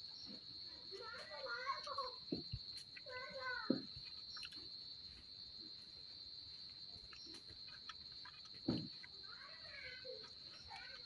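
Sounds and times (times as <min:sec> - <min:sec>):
faint bird chirps: 0:00.0 - 0:05.3, 0:06.2 - 0:11.0
insects droning: 0:00.0 - 0:11.0
dull thump: 0:08.6 - 0:09.1.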